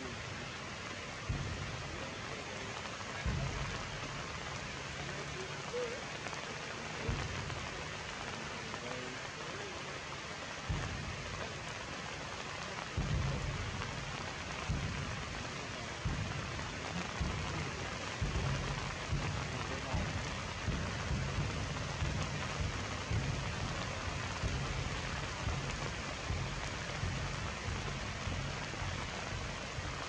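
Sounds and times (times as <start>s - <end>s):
rain on foliage: 0.0s - 30.0s
dull low thumps: 1.2s - 2.1s, 3.2s - 5.0s, 7.0s - 7.8s, 10.6s - 11.6s, 13.0s - 30.0s.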